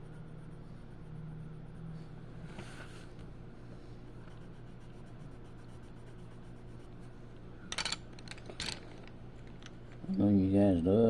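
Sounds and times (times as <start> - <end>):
pencil scratching on paper: 4.2 - 7.2
wooden pencils clattering: 7.7 - 9.7.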